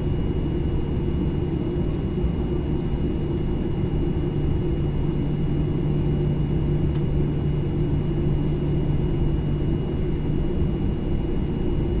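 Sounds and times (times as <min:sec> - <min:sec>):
jet cabin engine rumble: 0:00.0 - 0:12.0.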